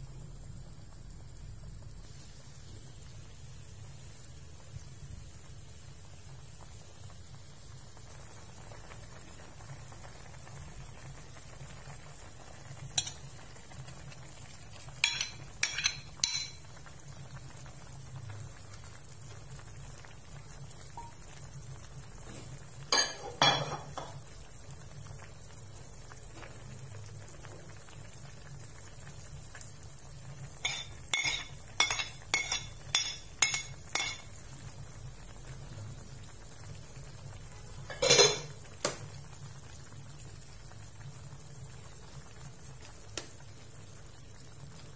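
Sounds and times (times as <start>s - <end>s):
metal ladle clinking on wok: 13.0s - 13.2s, 15.0s - 16.6s, 30.6s - 34.3s
metal spoon tapping plate: 15.0s - 16.6s, 30.6s - 34.3s.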